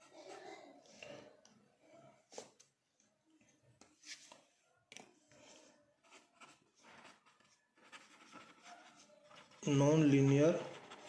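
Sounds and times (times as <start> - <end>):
marker pen scratching on paper: 5.3 - 11.0.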